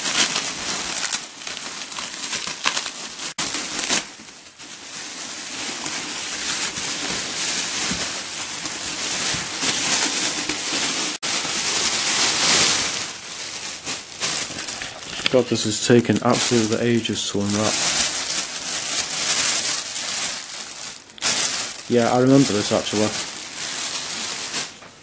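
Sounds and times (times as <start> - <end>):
plastic bags crinkling: 0.0 - 25.0.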